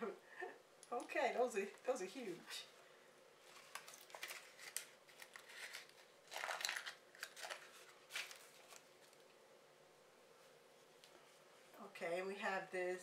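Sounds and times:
paper and plastic packaging rustling: 0:03.4 - 0:09.3.

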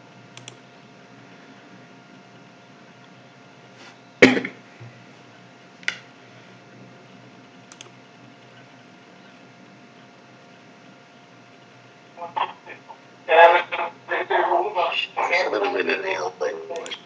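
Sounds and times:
computer mouse clicks: 0:00.4 - 0:00.6, 0:07.7 - 0:08.6.

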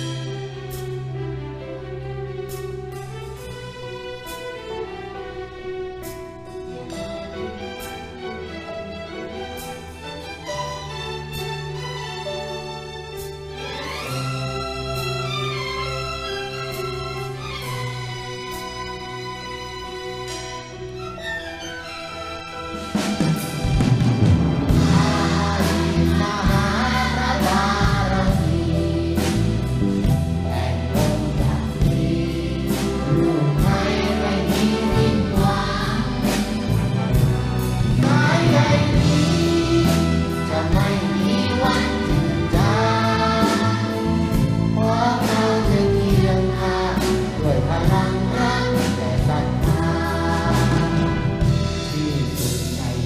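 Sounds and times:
orchestra playing over a beat: 0:00.0 - 0:53.0
children's choir singing: 0:24.2 - 0:53.0.

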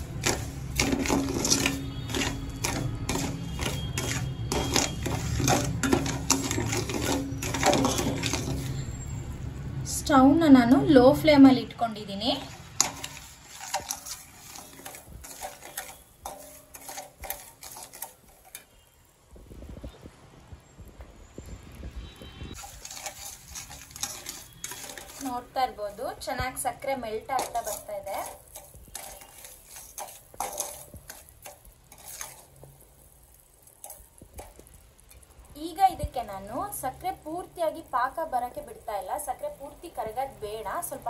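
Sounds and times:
metal spatula scraping steel pan: 0:00.0 - 0:09.0, 0:12.3 - 0:18.8, 0:22.5 - 0:35.2.

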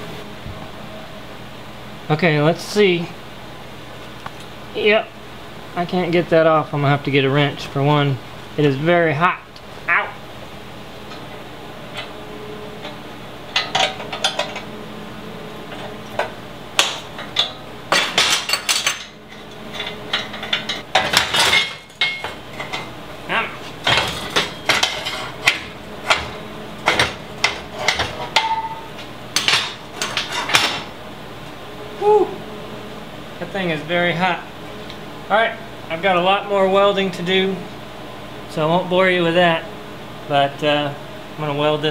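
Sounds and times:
wrenches clanking on metal: 0:13.6 - 0:14.6, 0:16.8 - 0:22.9, 0:23.8 - 0:28.8, 0:29.4 - 0:30.9
metallic ring: 0:28.3 - 0:29.6.

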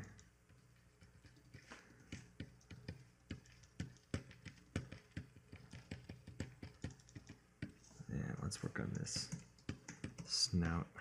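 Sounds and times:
faint low hum: 0:00.0 - 0:11.0
keyboard and pen clicks: 0:02.1 - 0:07.4.

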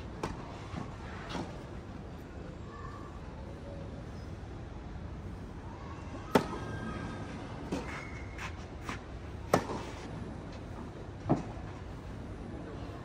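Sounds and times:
shoe squeak: 0:07.8 - 0:08.6.

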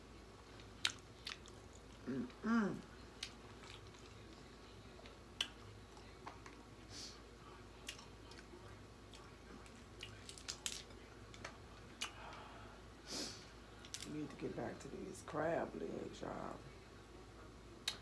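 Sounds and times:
crab shells clicking and cracking: 0:10.0 - 0:12.2.

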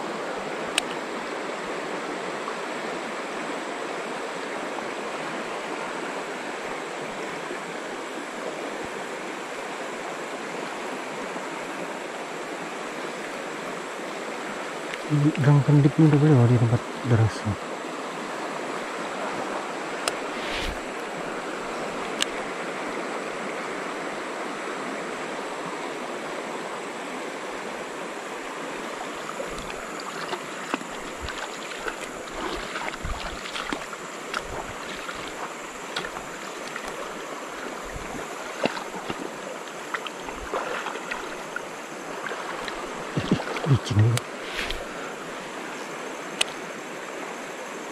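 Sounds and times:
river rapids rushing: 0:26.8 - 0:47.9.

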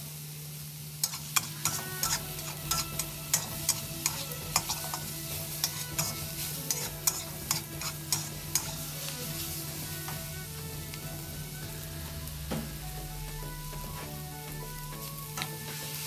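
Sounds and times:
food sizzling in a pan: 0:00.0 - 0:16.0
metal spatula scraping a wok: 0:01.0 - 0:12.0.

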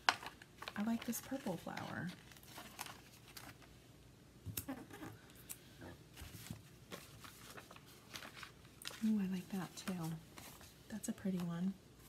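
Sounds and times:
paper rustling: 0:00.0 - 0:03.7, 0:06.2 - 0:12.0.

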